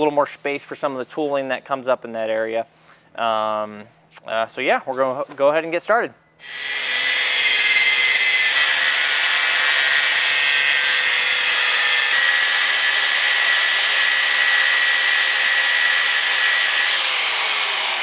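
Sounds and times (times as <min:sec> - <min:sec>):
angle grinder cutting metal: 0:06.4 - 0:18.0.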